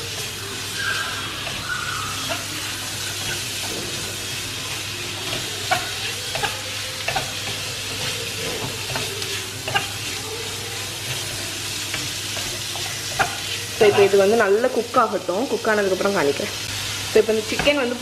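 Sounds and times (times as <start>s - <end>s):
food sizzling in hot oil: 0.0s - 18.0s.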